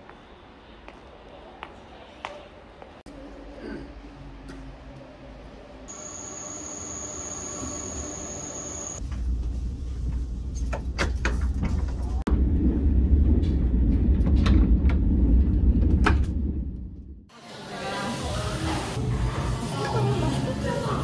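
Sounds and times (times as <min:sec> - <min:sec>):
high whine: 0:05.9 - 0:09.0
train rumbling: 0:09.0 - 0:17.3.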